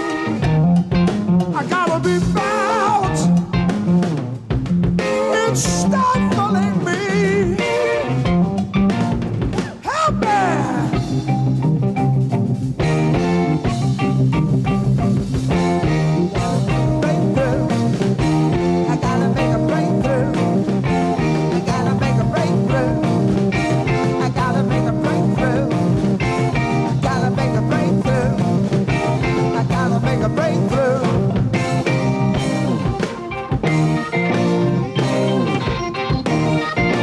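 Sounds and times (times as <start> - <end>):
instrumental hard rock band: 0.0 - 37.0
wavering lead guitar line: 0.0 - 37.0.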